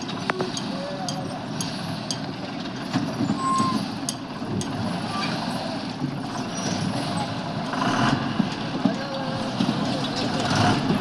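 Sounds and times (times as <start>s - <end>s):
diesel truck engine rumbling: 0.0s - 11.0s
short high squeak: 3.1s - 5.4s.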